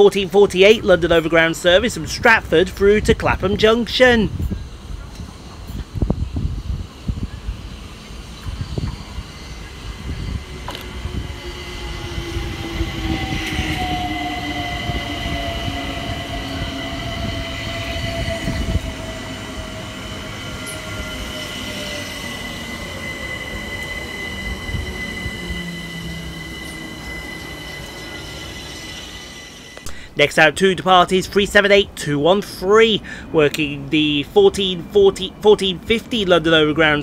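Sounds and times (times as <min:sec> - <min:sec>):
train rumble: 0:00.0 - 0:37.0
train motor whine: 0:04.3 - 0:30.2
high-pitched squeal: 0:04.4 - 0:30.5.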